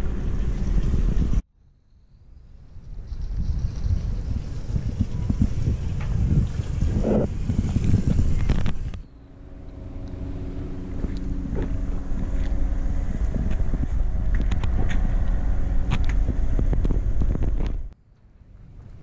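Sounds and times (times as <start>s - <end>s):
wind buffeting microphone: 0.0s - 1.4s, 2.4s - 18.0s
small engine hum: 2.9s - 19.0s.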